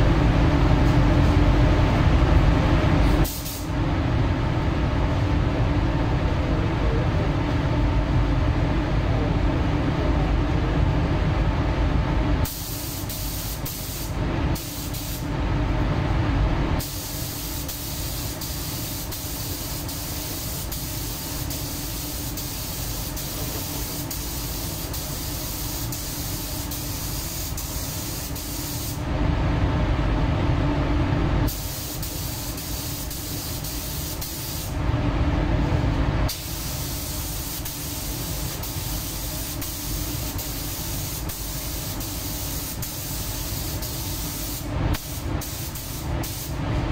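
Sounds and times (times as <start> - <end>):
paint spray gun hissing: 16.8 - 29.0, 31.5 - 34.7, 36.3 - 46.5.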